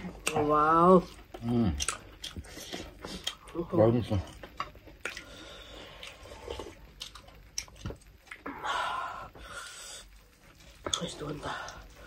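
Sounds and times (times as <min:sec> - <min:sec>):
wet chewing clicks: 0:01.0 - 0:08.5
breathing: 0:05.2 - 0:06.7, 0:08.6 - 0:10.2.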